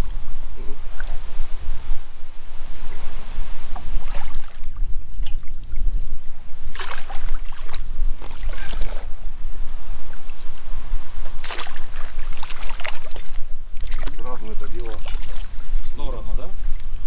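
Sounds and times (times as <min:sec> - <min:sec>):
wind rumbling on microphone: 0:00.0 - 0:17.0
water splashing: 0:02.8 - 0:09.4, 0:11.2 - 0:15.8.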